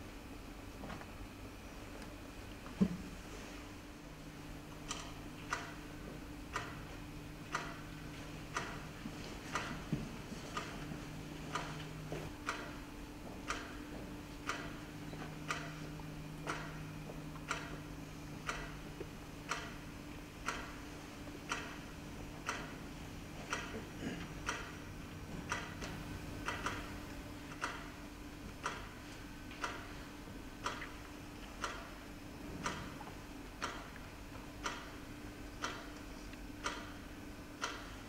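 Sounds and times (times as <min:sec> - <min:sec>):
low steady hum: 0:00.0 - 0:38.0
clock ticking: 0:04.9 - 0:30.0, 0:30.6 - 0:36.0, 0:36.6 - 0:38.0
second clock ticking: 0:06.5 - 0:07.9, 0:11.5 - 0:12.8, 0:14.4 - 0:16.8, 0:17.4 - 0:20.8, 0:21.5 - 0:22.8, 0:23.5 - 0:24.8, 0:25.4 - 0:28.0, 0:28.6 - 0:28.9, 0:29.5 - 0:30.0, 0:31.6 - 0:32.0, 0:34.6 - 0:35.0, 0:35.6 - 0:36.0, 0:36.6 - 0:38.0.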